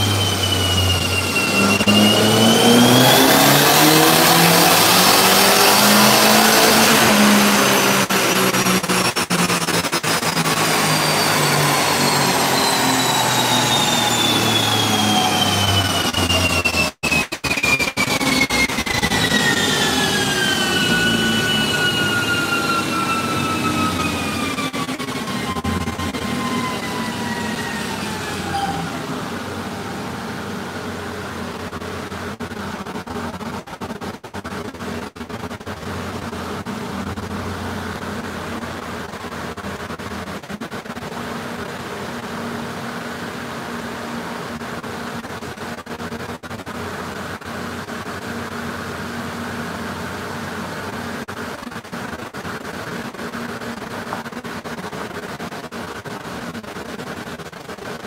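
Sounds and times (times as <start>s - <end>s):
car engine running: 0.0s - 16.9s
turbo car engine rush and whine: 0.0s - 58.0s.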